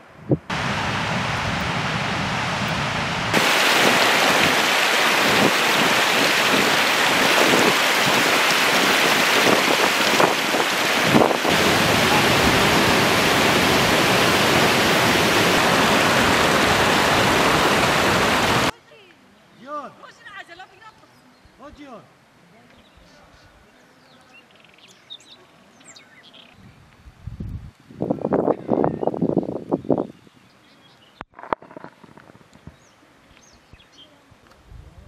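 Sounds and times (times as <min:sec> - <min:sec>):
stream rushing over rocks: 0:00.5 - 0:18.7.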